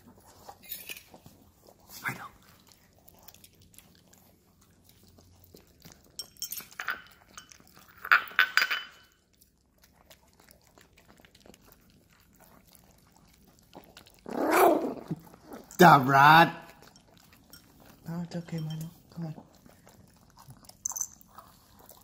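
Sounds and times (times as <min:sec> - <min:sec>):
dogs chewing and licking: 0:00.0 - 0:22.0
clinks against glass bowl: 0:06.2 - 0:09.2, 0:18.5 - 0:19.0, 0:20.8 - 0:21.2.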